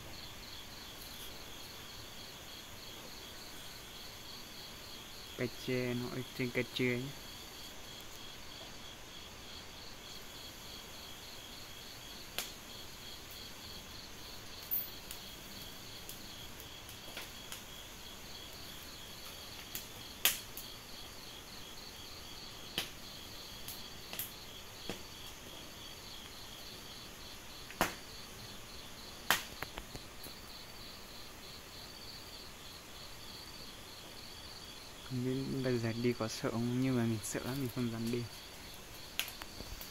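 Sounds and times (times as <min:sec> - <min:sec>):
night insect chorus trilling: 0:00.0 - 0:39.9
sharp pops and clicks: 0:12.4 - 0:12.6, 0:16.9 - 0:17.7, 0:19.6 - 0:20.6, 0:22.7 - 0:23.0, 0:23.7 - 0:25.4, 0:27.7 - 0:28.1, 0:29.2 - 0:30.4, 0:37.5 - 0:39.9.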